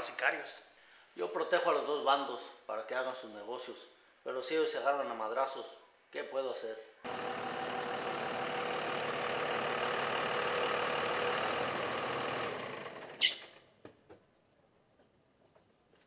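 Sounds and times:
pickup truck engine running: 0:07.1 - 0:13.2.

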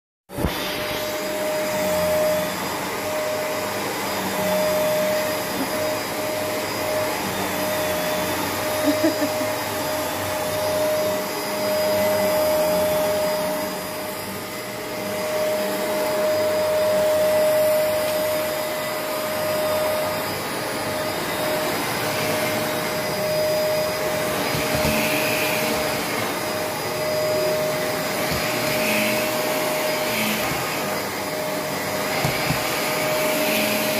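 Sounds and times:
vacuum cleaner running: 0:00.3 - 0:33.9.

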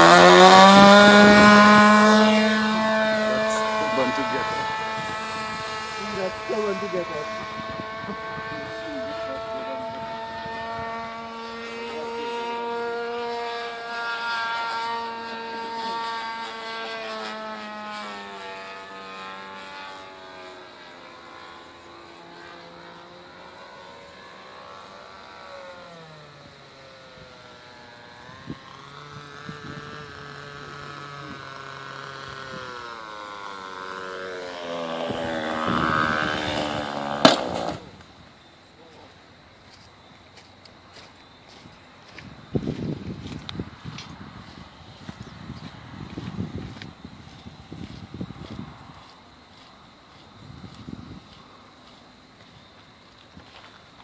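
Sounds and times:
model airplane engine droning: 0:00.0 - 0:54.0
plane crashing thump: 0:36.8 - 0:37.9.

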